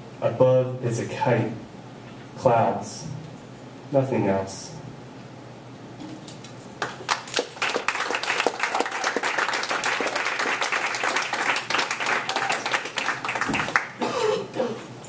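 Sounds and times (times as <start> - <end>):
audience applauding: 6.8 - 14.0.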